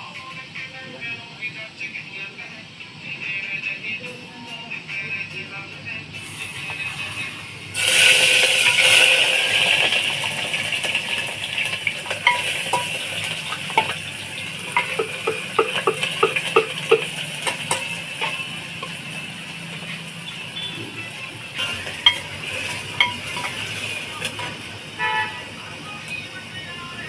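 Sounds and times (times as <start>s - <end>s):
onion sizzling in hot oil: 6.2s - 25.6s
metal spoon clinking against pot: 11.2s - 19.1s, 21.6s - 24.6s.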